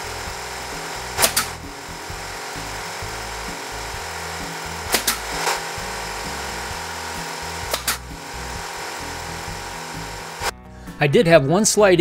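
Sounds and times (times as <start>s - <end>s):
nail gun firing: 0.5s - 5.8s, 7.6s - 8.1s.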